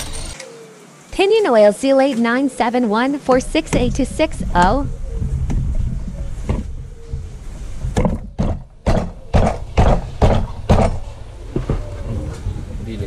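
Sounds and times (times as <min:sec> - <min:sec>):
steady low hum: 0:00.0 - 0:13.0
sharp knocks: 0:03.3 - 0:11.9.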